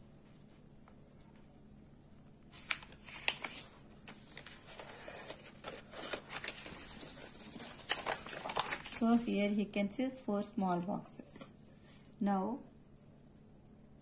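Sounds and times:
paper being folded and creased: 0:02.5 - 0:09.6.

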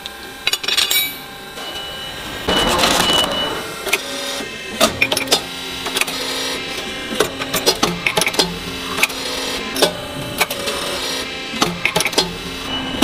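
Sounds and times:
low steady machine hum: 0:00.0 - 0:13.0.

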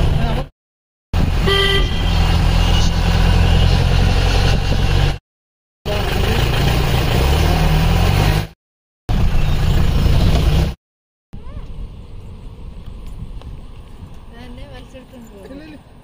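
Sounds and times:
short horn toot: 0:01.4 - 0:03.0
vehicle engine running: 0:05.9 - 0:08.5.

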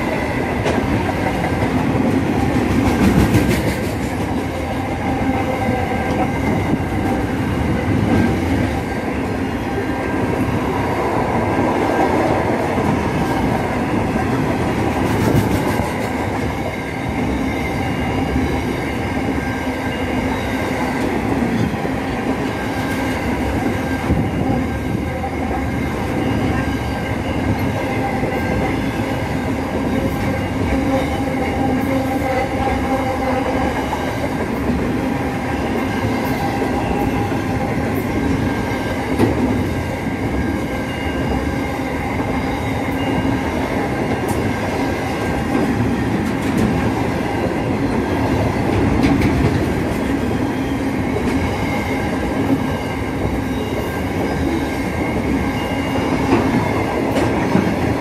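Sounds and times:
train wheels rumbling on rails: 0:00.0 - 0:58.0
high ringing tones: 0:39.6 - 0:44.2, 0:50.2 - 0:56.9.

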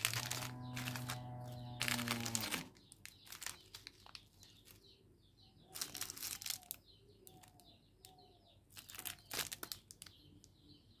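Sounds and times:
plastic wrappers crinkling: 0:00.0 - 0:04.8, 0:05.7 - 0:07.6, 0:08.7 - 0:10.2.

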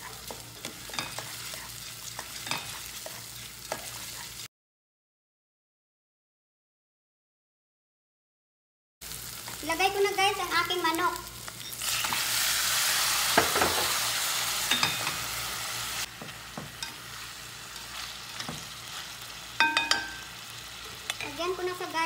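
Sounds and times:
chicken sizzling in hot oil: 0:00.0 - 0:04.5, 0:09.0 - 0:22.0.

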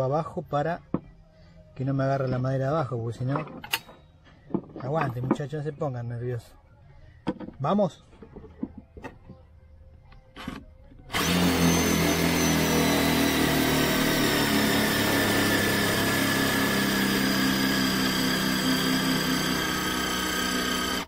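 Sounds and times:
impact driver hammering screw: 0:11.1 - 0:21.0.

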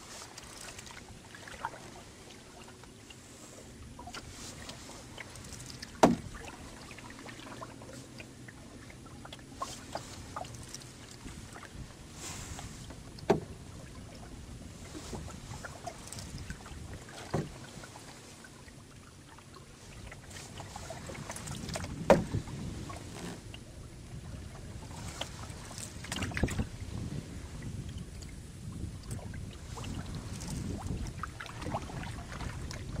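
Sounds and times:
water washing against canoe hull: 0:00.0 - 0:33.0
sharp knocks or splashes: 0:05.7 - 0:06.6, 0:13.2 - 0:13.5, 0:17.2 - 0:17.6, 0:21.4 - 0:22.5.

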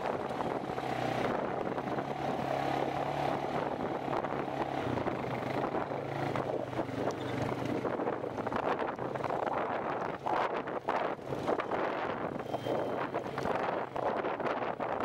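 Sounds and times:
quad engine running: 0:00.0 - 0:14.2
wind noise on microphone: 0:00.0 - 0:15.0.

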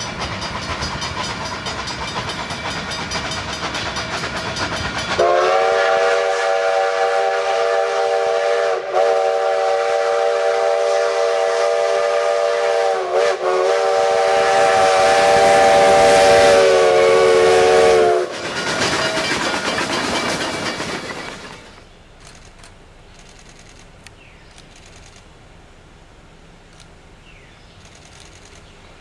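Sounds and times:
steam locomotive chime whistle: 0:00.0 - 0:21.8
steam hiss: 0:00.0 - 0:21.9
train rumbling: 0:00.0 - 0:29.0.

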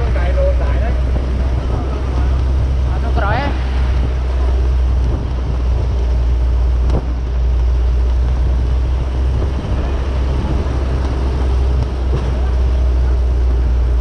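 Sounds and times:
road and wind noise: 0:00.0 - 0:14.0
vehicle engine humming: 0:00.0 - 0:14.0.

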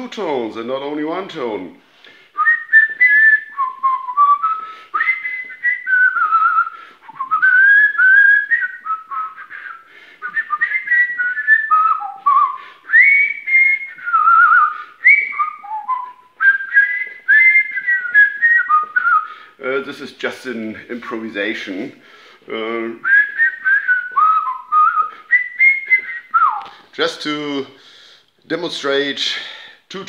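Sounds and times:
man whistling polyphonic tune: 0:02.3 - 0:19.6, 0:22.6 - 0:26.9.

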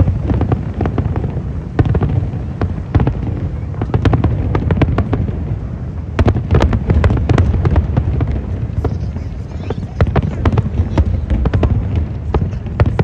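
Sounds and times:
continuous low rumble: 0:00.0 - 0:13.0
fireworks bursting: 0:00.0 - 0:13.0.

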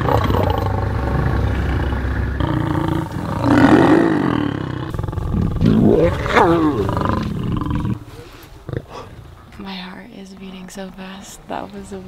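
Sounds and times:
lions growling and snarling: 0:00.0 - 0:09.5.

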